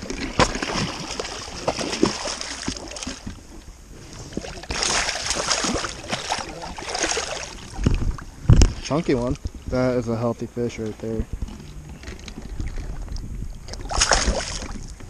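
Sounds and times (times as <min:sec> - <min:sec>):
fish thrashing and splashing: 0:00.0 - 0:03.4, 0:04.2 - 0:08.8, 0:11.4 - 0:15.0.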